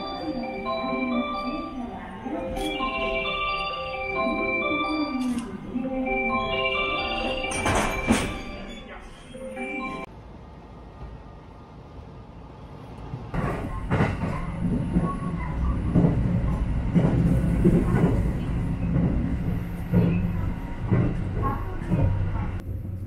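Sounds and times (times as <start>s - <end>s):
train running rumble: 13.0s - 23.0s
regular train wheel knocks: 13.2s - 22.6s.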